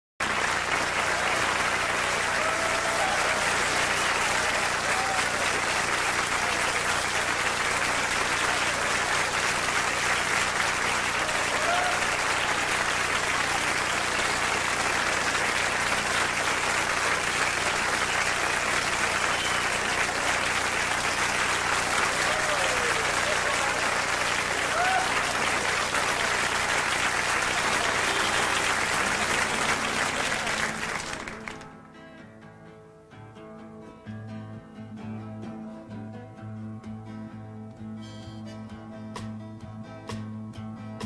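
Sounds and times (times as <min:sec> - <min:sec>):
audience applauding: 0:00.2 - 0:31.8
crowd calling out: 0:00.3 - 0:31.8.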